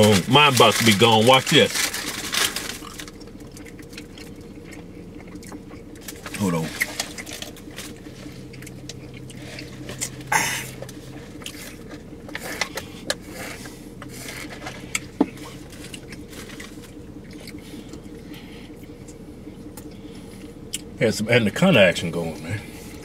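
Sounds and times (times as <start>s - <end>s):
food wrappers rustling: 0.0s - 4.5s
faint low hum: 0.0s - 23.0s
chewing: 1.7s - 20.9s.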